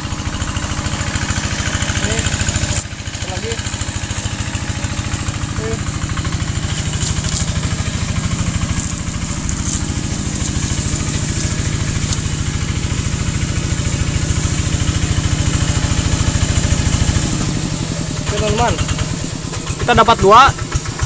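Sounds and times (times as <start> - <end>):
small engine idling: 0.0 - 21.0
leaves and grass rustling: 0.3 - 20.2.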